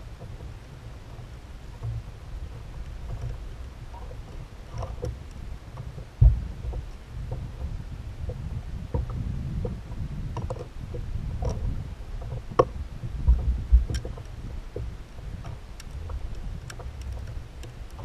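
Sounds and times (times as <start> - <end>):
wind rumble on microphone: 0.0 - 18.0
heavy thumps: 6.2 - 6.8
clicks of fishing gear handled: 10.4 - 10.8, 13.4 - 14.4, 15.4 - 18.0.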